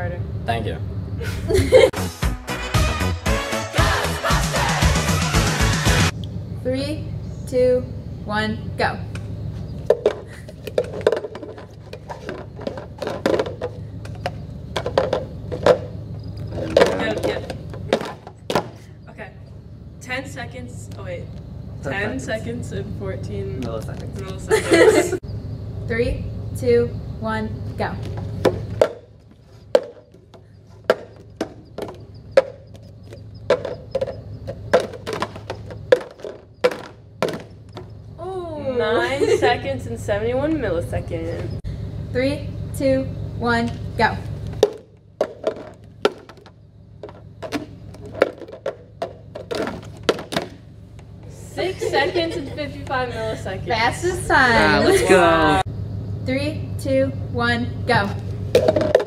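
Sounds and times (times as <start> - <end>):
plastic cups clacking on table: 9.8 - 18.7, 28.4 - 37.9, 44.6 - 50.6, 58.5 - 59.0.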